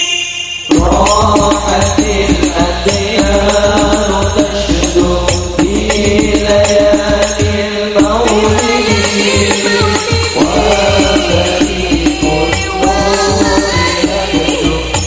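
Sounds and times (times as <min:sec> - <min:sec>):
frame drums and bass drum: 0:00.7 - 0:15.0
men singing in unison: 0:00.7 - 0:15.0.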